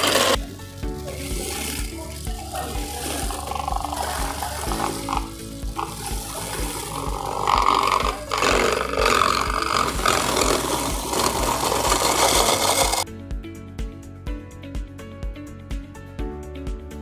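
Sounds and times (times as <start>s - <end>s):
electric ice crusher grinding ice: 0.0s - 13.0s
background music with steady beat: 0.0s - 17.0s.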